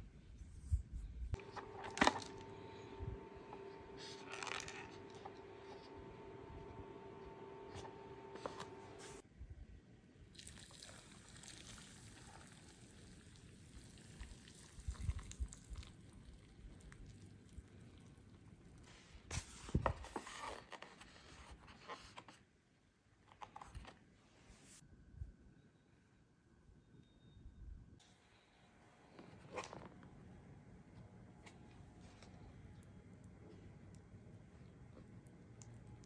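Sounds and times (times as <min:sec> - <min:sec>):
water pouring into paper cup: 0:10.3 - 0:18.3.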